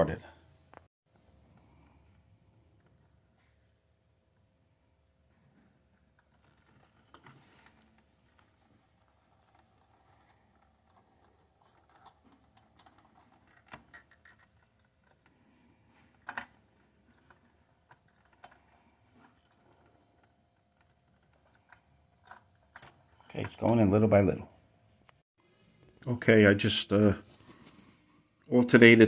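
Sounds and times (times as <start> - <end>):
screwdriver clicking and scraping: 9.0 - 15.3.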